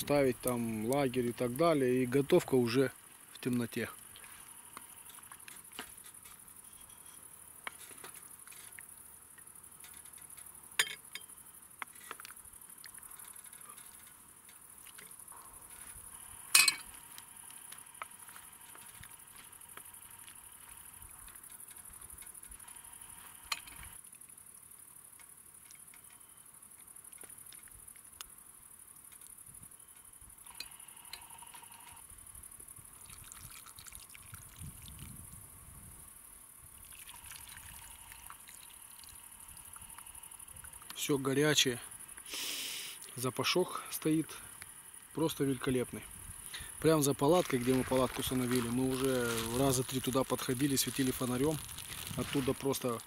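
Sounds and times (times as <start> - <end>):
night insects trilling: 0.0 - 53.0
utensils clinking on cookware: 16.5 - 16.9.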